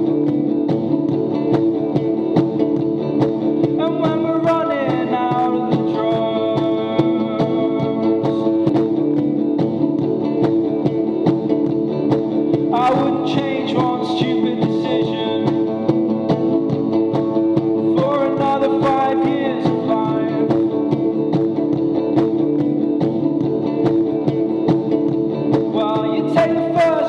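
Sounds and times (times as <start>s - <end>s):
electric guitar strumming chords: 0.0s - 27.0s
man singing: 3.6s - 9.0s, 12.6s - 16.6s, 17.8s - 21.4s, 25.5s - 27.0s.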